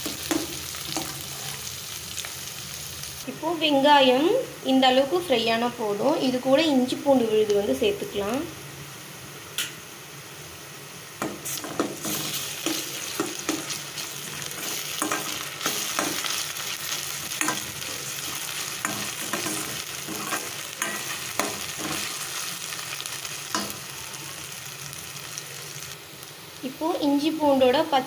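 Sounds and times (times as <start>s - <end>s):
onions sizzling in oil: 0.0s - 28.0s
metal spoon scraping a pan: 11.5s - 22.4s.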